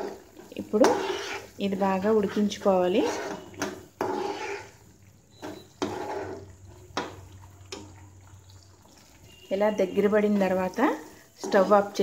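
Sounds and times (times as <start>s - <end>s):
spoon knocking and scraping pan: 0.0s - 1.6s, 2.7s - 8.0s, 11.4s - 12.0s
thick mixture bubbling: 0.0s - 12.0s.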